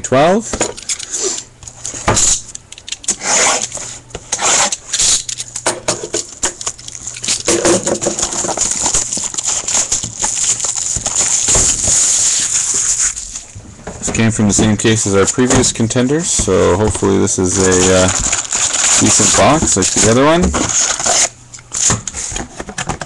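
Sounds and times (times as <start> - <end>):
plastic wrap crinkling and tearing: 4.7 - 5.6, 6.2 - 13.6, 16.3 - 22.3.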